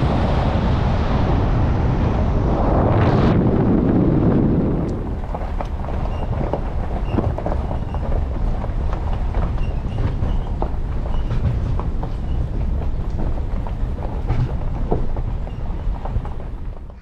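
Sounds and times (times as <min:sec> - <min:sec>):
truck rumbling: 0:00.0 - 0:17.0
tyres crunching gravel: 0:04.4 - 0:17.0
knocks and rattles: 0:04.8 - 0:17.0.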